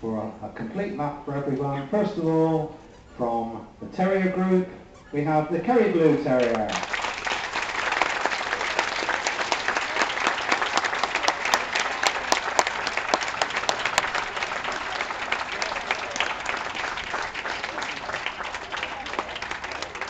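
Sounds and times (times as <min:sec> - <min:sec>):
audience applauding: 0:06.4 - 0:20.0.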